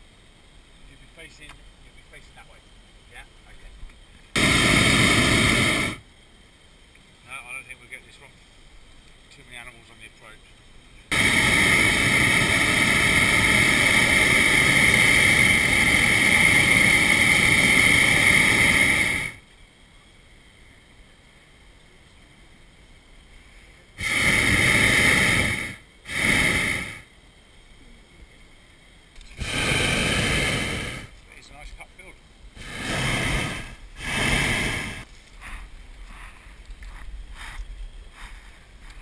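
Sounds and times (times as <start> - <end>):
propane burner firing: 4.3 - 6.1, 11.1 - 19.5, 24.0 - 27.1, 29.1 - 31.7, 32.6 - 35.2.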